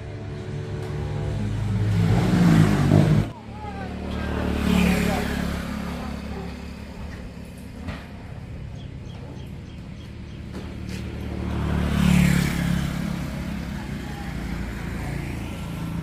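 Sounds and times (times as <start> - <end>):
traffic engine rumble: 0.0 - 16.0
vehicle passing close: 0.0 - 16.0.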